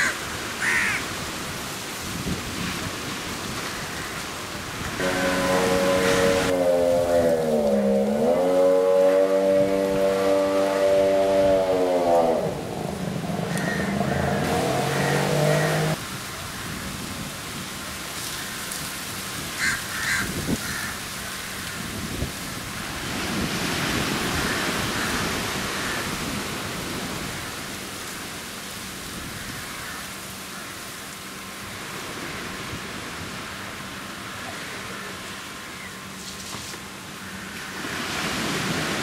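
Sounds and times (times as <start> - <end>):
waves washing onto shore: 0.0 - 39.0
wind on microphone: 1.5 - 3.8, 20.1 - 20.9, 21.6 - 27.5
multi-tone drone: 5.0 - 16.0.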